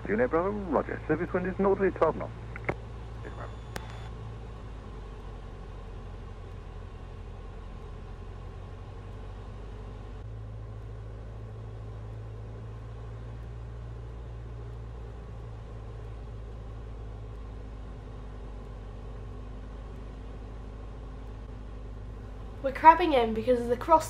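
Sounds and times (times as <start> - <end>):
propeller aircraft engine droning: 0.0 - 24.0
faint tone: 3.2 - 4.2.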